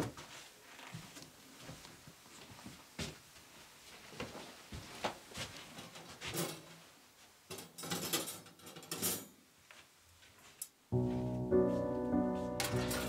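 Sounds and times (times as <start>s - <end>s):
music: 10.9s - 13.0s
hands handling craft materials: 12.6s - 13.0s.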